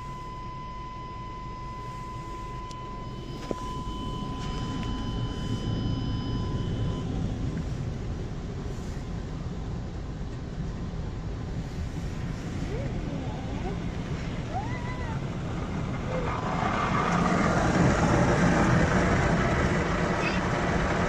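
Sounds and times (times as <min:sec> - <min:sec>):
high electronic tone: 0:00.0 - 0:07.2.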